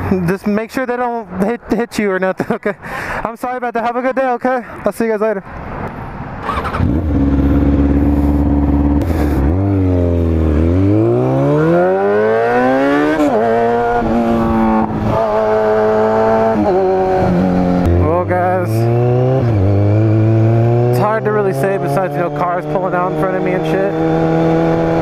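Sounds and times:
motorcycle engine accelerating: 6.4 - 25.0.

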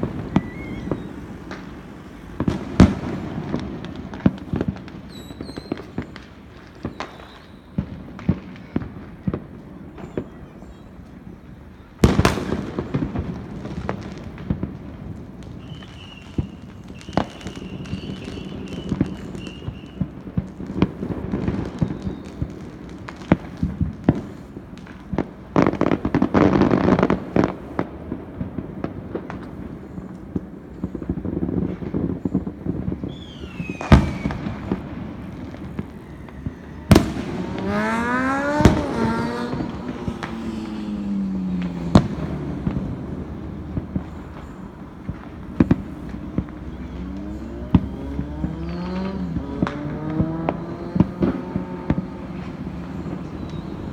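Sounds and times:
firework whistle falling: 0.0 - 8.0, 15.4 - 22.8, 33.0 - 53.9
firework crackling: 0.0 - 53.9
firework shells bursting: 32.2 - 53.9.

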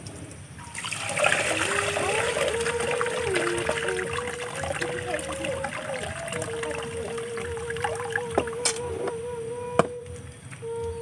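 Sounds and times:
water trickling and splashing: 0.4 - 9.2.

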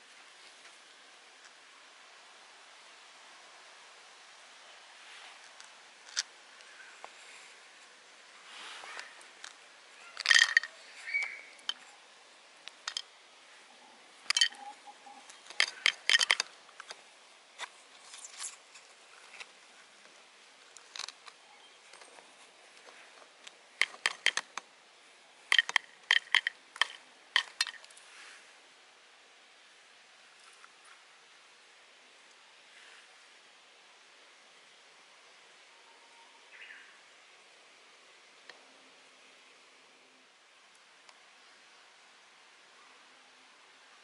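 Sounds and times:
handling clicks and taps: 15.3 - 17.0, 22.8 - 24.7, 25.5 - 27.9.

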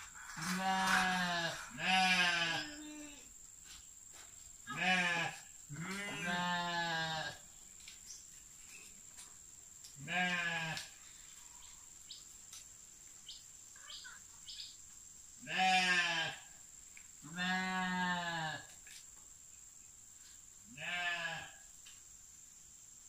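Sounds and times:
sheep bleating: 0.4 - 2.8, 4.7 - 7.4, 15.5 - 16.4, 20.8 - 21.5.

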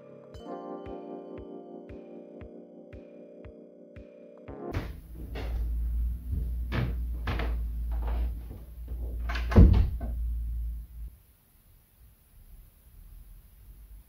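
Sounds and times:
cupboard doors knocking: 4.7 - 10.3
low steady hum: 4.8 - 14.0.

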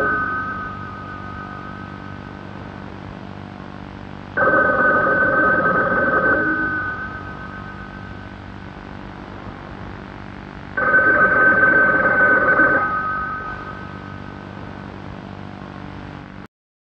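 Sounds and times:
telephone bell ringing: 0.0 - 2.4, 4.4 - 8.4, 10.8 - 14.4.

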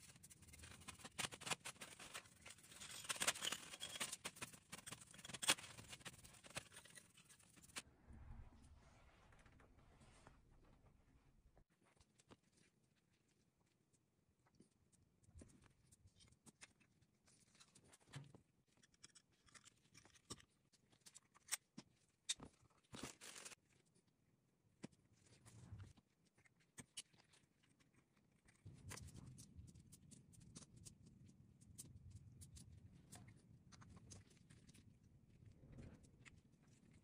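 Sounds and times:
small parts clicking and rustling: 0.0 - 7.8.

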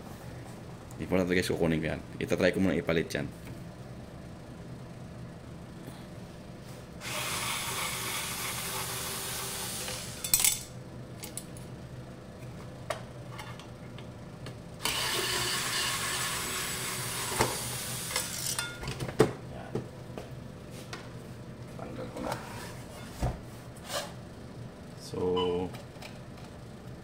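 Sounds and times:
electric screwdriver running: 7.0 - 10.2.

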